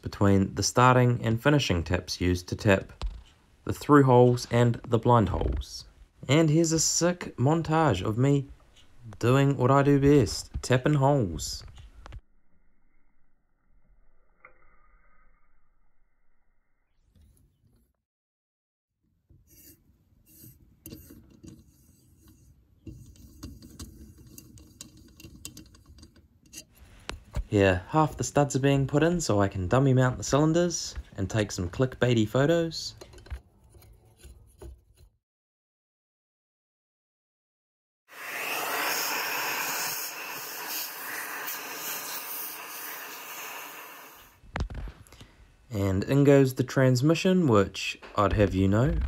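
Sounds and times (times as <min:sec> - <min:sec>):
compressed air rushing from nozzle: 0:38.1 - 0:44.4.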